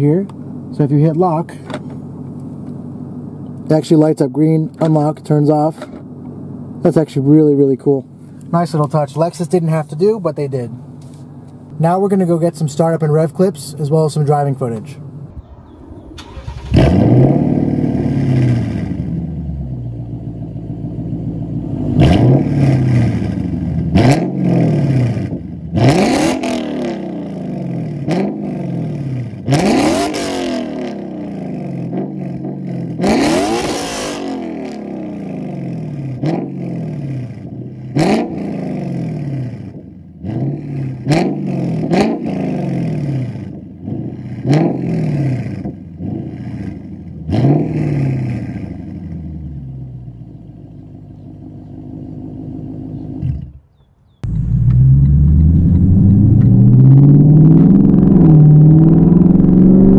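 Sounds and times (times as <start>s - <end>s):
car engine starting and revving: 15.2s - 53.6s, 54.2s - 59.9s.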